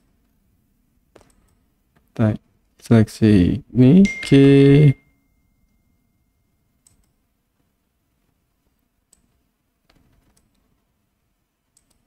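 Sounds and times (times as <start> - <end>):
computer mouse clicks: 1.2 - 2.1, 6.8 - 7.2, 9.1 - 10.8, 11.7 - 12.0.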